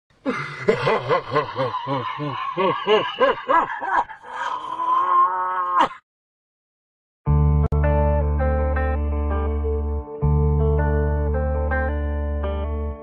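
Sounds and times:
deep laugh-like voice effect: 0:00.2 - 0:05.1.

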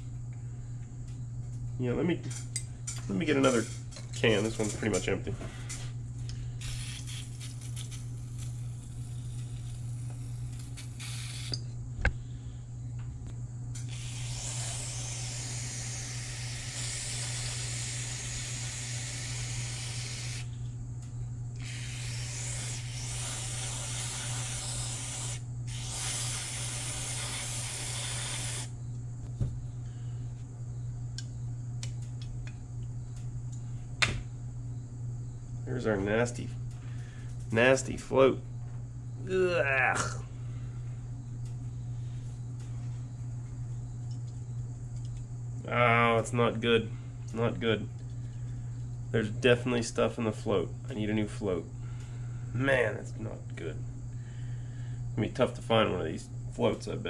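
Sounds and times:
steady low hum: 0:00.0 - 0:57.0
aerosol spray hissing: 0:06.6 - 0:11.6, 0:13.9 - 0:20.6, 0:21.6 - 0:28.8.

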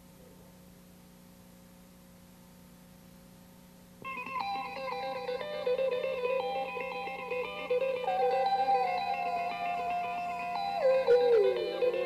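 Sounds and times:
low steady hum: 0:00.0 - 0:12.0
guitar music with quick runs: 0:04.0 - 0:12.0.

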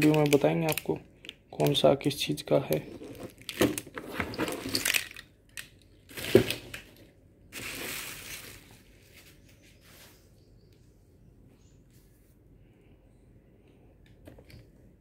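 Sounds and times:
cardboard and plastic rustling: 0:00.0 - 0:01.9, 0:02.7 - 0:09.6.

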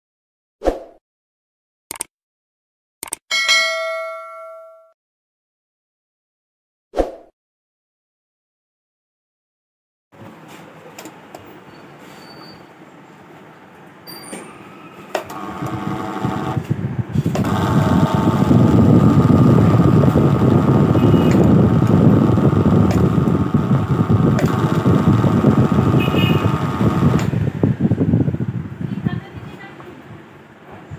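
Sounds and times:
fan switch clicks: 0:15.2 - 0:27.5
fan motor buzzing rattle and whine: 0:15.2 - 0:28.5.

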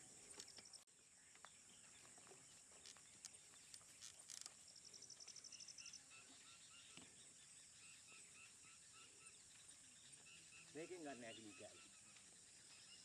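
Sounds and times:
insects buzzing: 0:00.0 - 0:13.0
insect pulsed trill: 0:02.8 - 0:13.0.

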